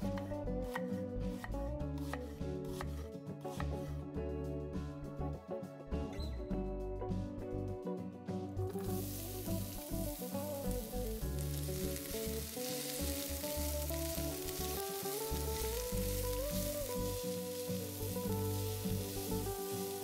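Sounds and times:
background music with melody: 0:00.0 - 0:20.0
onion sizzling in a frying pan: 0:08.7 - 0:20.0.

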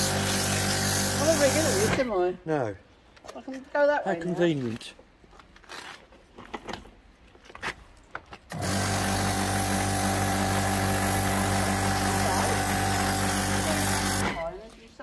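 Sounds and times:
pressure washer motor humming: 0:00.0 - 0:02.0, 0:08.5 - 0:14.5
water jet spraying on concrete: 0:00.0 - 0:02.1, 0:08.5 - 0:14.6.

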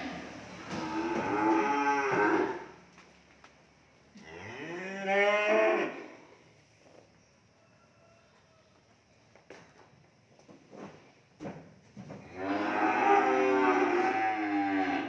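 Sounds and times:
cow mooing: 0:00.0 - 0:02.8, 0:04.2 - 0:06.1, 0:12.3 - 0:15.0.

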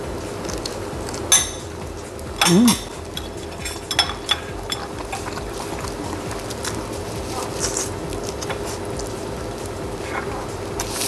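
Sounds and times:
biting and chewing: 0:00.0 - 0:11.0
dishes clinking: 0:01.2 - 0:01.8, 0:02.4 - 0:06.4.

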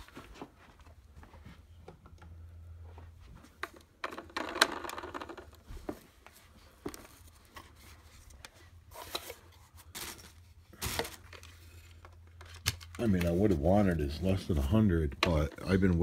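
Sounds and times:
rustling and scraping: 0:02.8 - 0:14.7.

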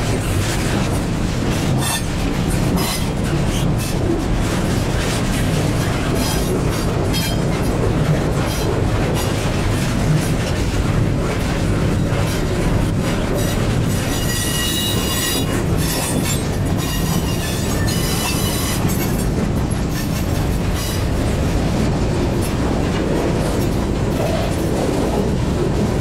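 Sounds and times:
train wheels rumbling on rail: 0:00.0 - 0:26.0
high-pitched wheel squeal: 0:14.1 - 0:18.8.

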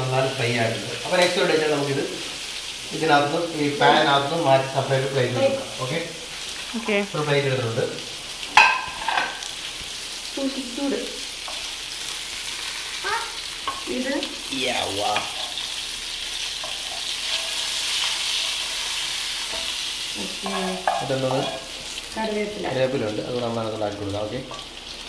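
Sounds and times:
fish sizzling in oil: 0:00.0 - 0:25.0.

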